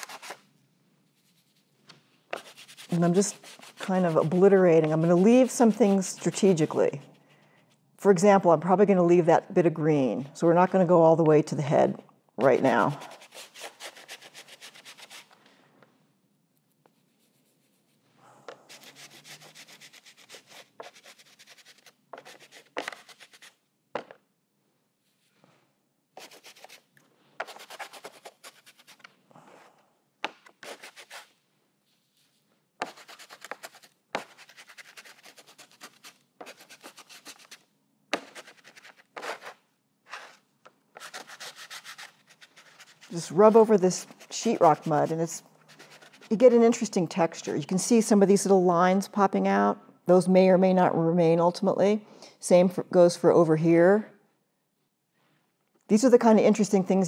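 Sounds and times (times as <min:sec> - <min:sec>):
paper towel rubbing textured surface: 0:01.0 - 0:07.2, 0:12.5 - 0:15.3, 0:16.9 - 0:23.6, 0:26.2 - 0:29.1, 0:30.5 - 0:37.6, 0:38.2 - 0:40.4, 0:41.0 - 0:46.5.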